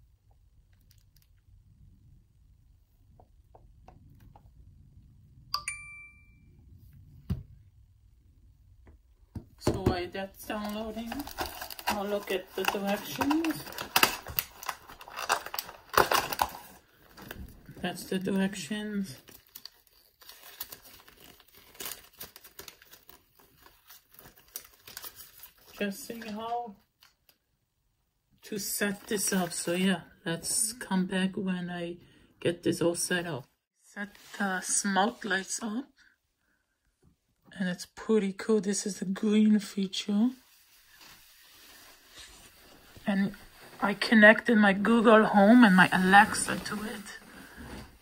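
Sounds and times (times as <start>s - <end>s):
phone chime ding: 5.5s - 6.5s
paper rustling and crinkling: 10.4s - 27.4s.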